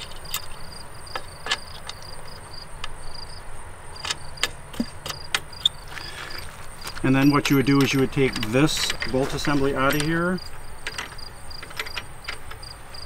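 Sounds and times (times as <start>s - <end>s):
insects chirping: 0.0s - 13.0s
metal clicks from bike rack: 4.0s - 12.6s.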